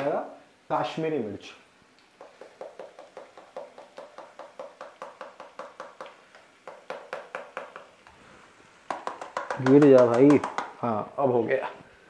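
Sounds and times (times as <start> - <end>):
plastic packet tapping: 2.2 - 8.0, 8.9 - 10.8.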